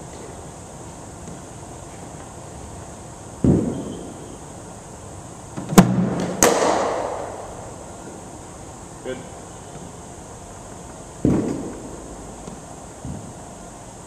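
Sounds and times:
cricket bat hitting ball: 3.4s - 4.1s, 5.7s - 7.5s, 11.2s - 11.9s
ball thumping on hard floor: 11.2s - 11.9s.

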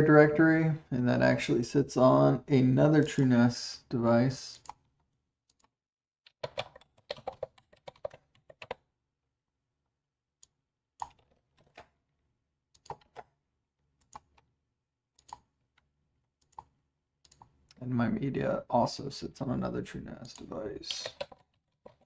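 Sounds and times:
keyboard typing: 6.3s - 8.8s, 12.8s - 13.3s, 20.3s - 22.0s.

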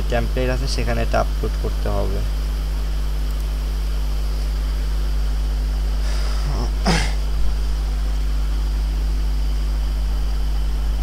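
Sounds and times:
steady low hum: 0.0s - 11.0s
person clearing throat: 6.4s - 7.2s.

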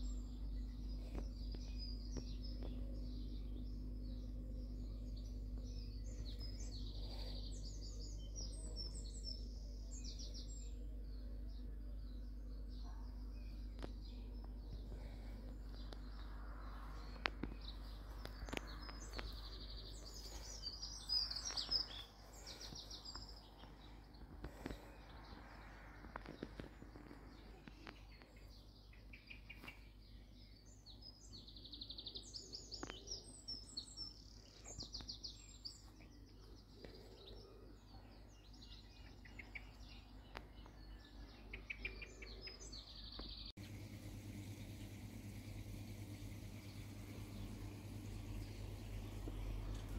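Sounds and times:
steady low hum: 0.0s - 30.6s, 43.4s - 49.9s
small birds chirping: 0.0s - 49.9s.

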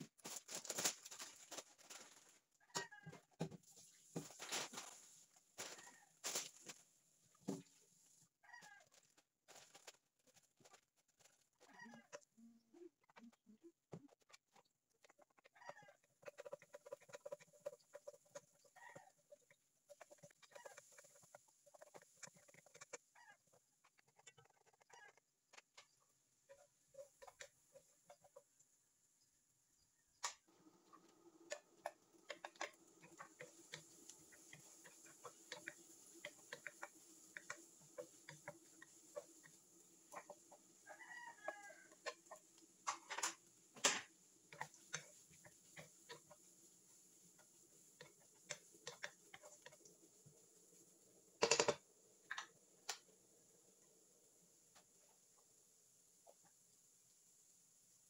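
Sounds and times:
spatula tapping and scraping wok: 31.4s - 40.5s.

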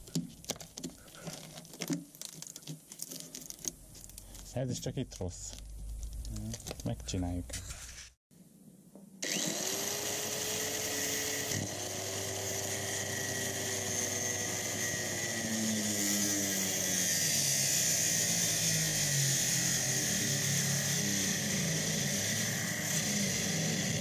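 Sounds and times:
angle grinder grinding sheet steel: 9.2s - 24.0s.

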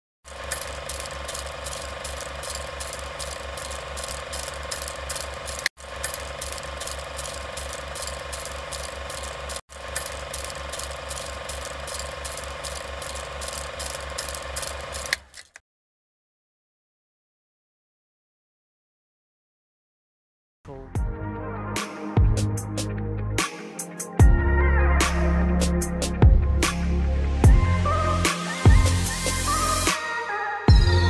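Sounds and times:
steady whir: 0.3s - 15.5s
mechanical clicking: 0.3s - 15.6s.

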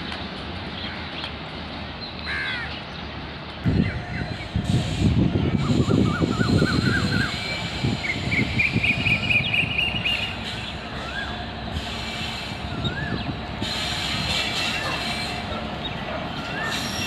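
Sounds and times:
train low rumble: 0.0s - 17.0s
high wavering wheel squeal: 4.4s - 15.6s, 16.3s - 17.0s.

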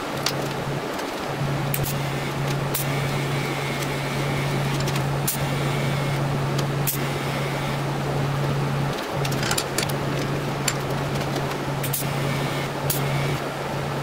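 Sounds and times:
welder humming and hissing: 1.4s - 9.3s, 9.9s - 13.4s
sharp clicks: 9.0s - 13.4s.

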